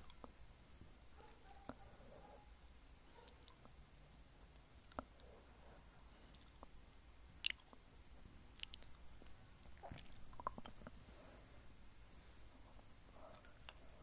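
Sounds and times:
tongue and lip clicks: 0:00.0 - 0:00.4, 0:03.2 - 0:03.8, 0:04.7 - 0:06.8, 0:07.4 - 0:07.8, 0:08.5 - 0:09.0, 0:09.6 - 0:11.0.

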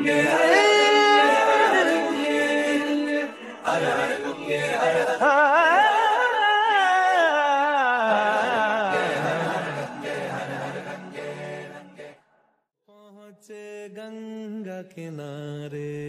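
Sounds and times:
solo voice singing: 0:00.0 - 0:03.0.

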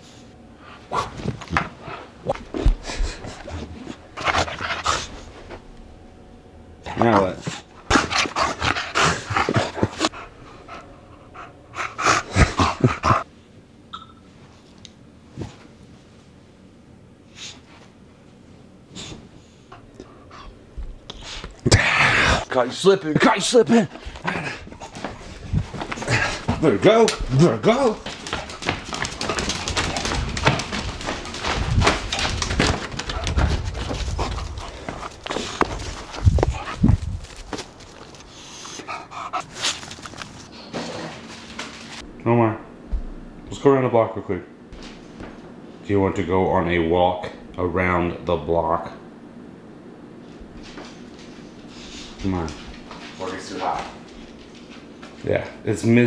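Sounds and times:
dog snorting and panting: 0:00.7 - 0:05.5, 0:06.9 - 0:13.3, 0:23.8 - 0:41.3
dog paws clicking on wooden floor: 0:24.9 - 0:38.3, 0:52.2 - 0:55.6.

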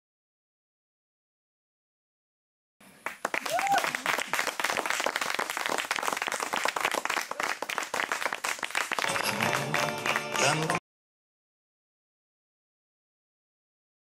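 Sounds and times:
audience applauding: 0:03.0 - 0:10.8
music with steady notes: 0:09.0 - 0:10.8.

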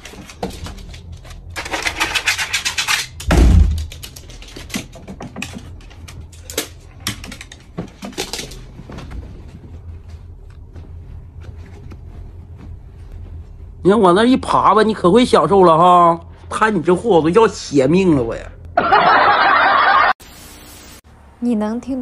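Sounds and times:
dog claws scratching hard surface: 0:01.6 - 0:03.2.

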